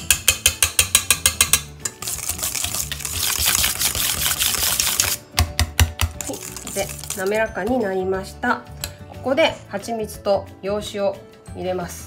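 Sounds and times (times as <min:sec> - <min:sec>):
whisk clicking against bowl: 0:00.1 - 0:05.2, 0:05.8 - 0:07.4
whisk scraping swish: 0:01.9 - 0:05.2, 0:06.2 - 0:07.4.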